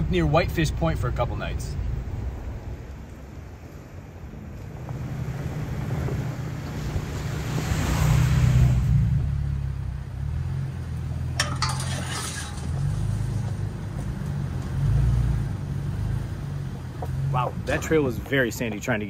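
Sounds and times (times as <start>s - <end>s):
clicks and rattles: 11.4s - 12.8s.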